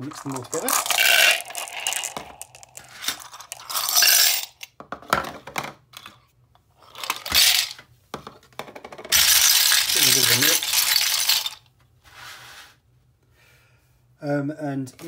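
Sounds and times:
marbles and caps clattering into bowl: 0.0 - 4.8, 6.9 - 7.8, 9.1 - 11.6.

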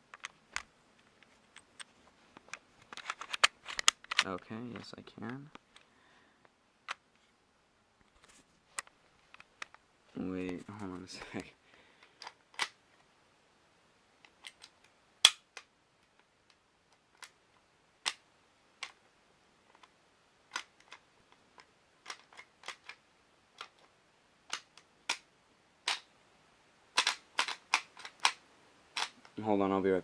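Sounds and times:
pistol parts clicking: 12.0 - 12.8, 14.2 - 15.7, 21.6 - 23.0, 24.5 - 26.1, 27.0 - 29.4.

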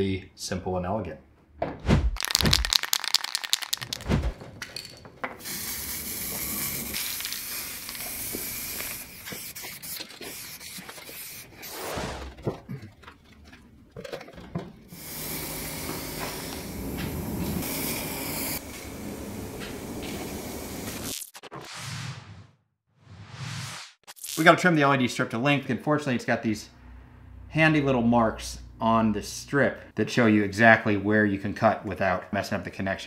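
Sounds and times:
spray paint can hissing: 2.2 - 4.1, 5.4 - 11.9, 15.0 - 21.2.

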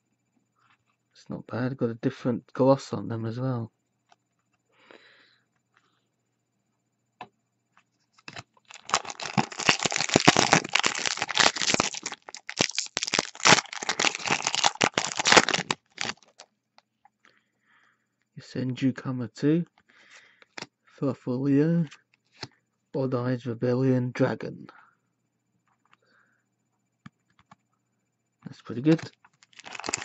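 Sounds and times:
foil wrapper tearing and crinkling: 8.3 - 16.4, 28.9 - 30.0.

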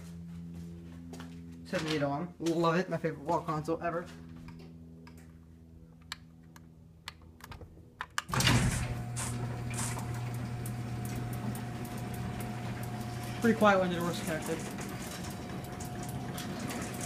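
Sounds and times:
garage door opener running: 8.3 - 17.0.

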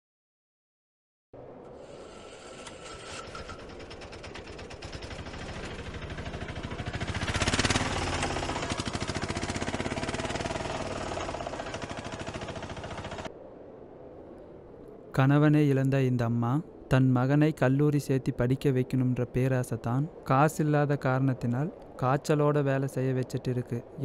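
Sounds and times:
fast machine-like pulsing: 2.0 - 13.3.

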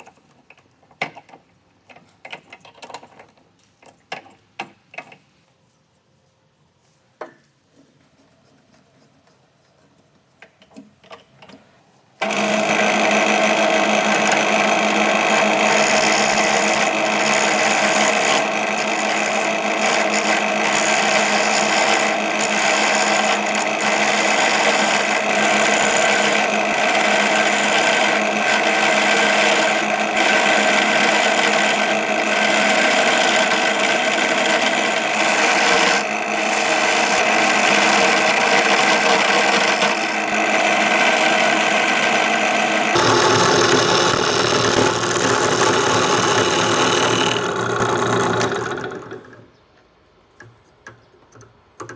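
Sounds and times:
chisel cutting spinning wood: 12.2 - 49.4
drill press motor hum: 12.2 - 49.4.

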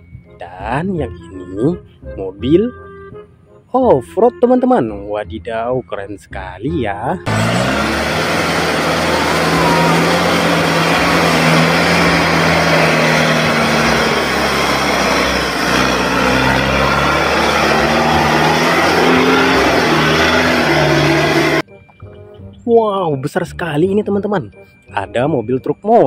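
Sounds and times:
pickup engine running under load: 7.3 - 21.6.

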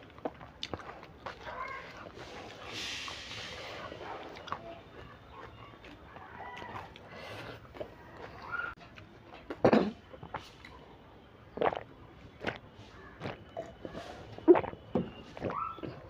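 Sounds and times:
wet mouth sounds and gulps: 0.0 - 2.7, 11.5 - 16.0
person chewing and swallowing: 0.0 - 3.2, 3.9 - 10.8, 11.5 - 16.0.

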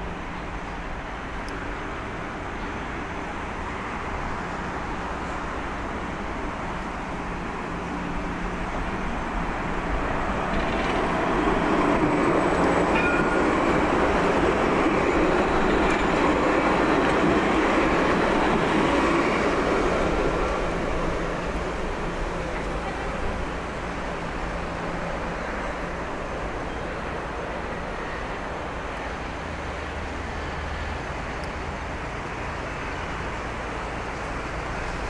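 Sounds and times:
tram running noise: 0.0 - 35.0
faint tram squeal: 9.8 - 21.4, 24.2 - 35.0.

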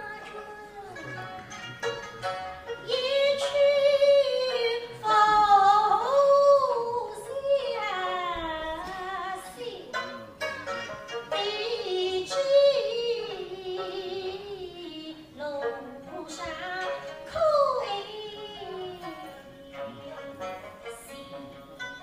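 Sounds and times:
plucked string accompaniment: 0.0 - 22.0
woman singing held wavering notes: 11.4 - 21.7.

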